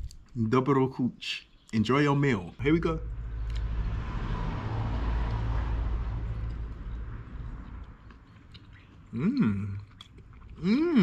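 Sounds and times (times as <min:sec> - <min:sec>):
low rumble with hiss: 0:01.8 - 0:11.0
man humming: 0:09.1 - 0:09.8, 0:10.6 - 0:11.0.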